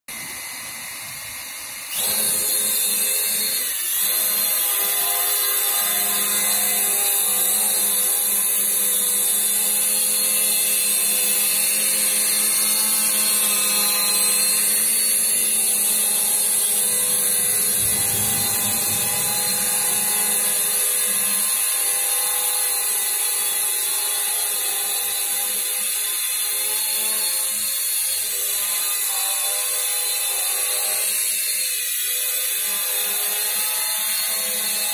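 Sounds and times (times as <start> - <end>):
drone propellers whining: 15.2 - 21.9.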